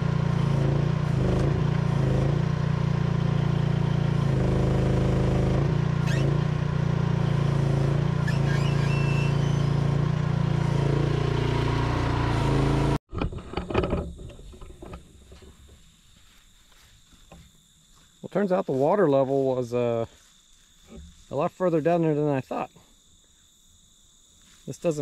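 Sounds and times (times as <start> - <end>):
excavator engine running: 0.0 - 15.8
bucket working through brush: 3.6 - 11.9.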